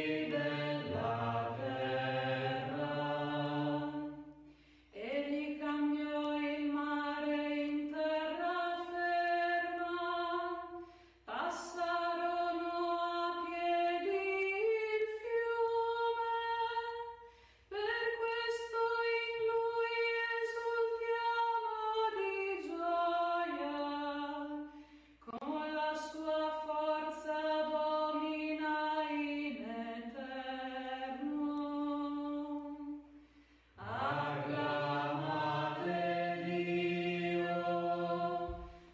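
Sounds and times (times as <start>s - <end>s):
woman singing unaccompanied: 5.0s - 24.6s, 25.3s - 33.0s.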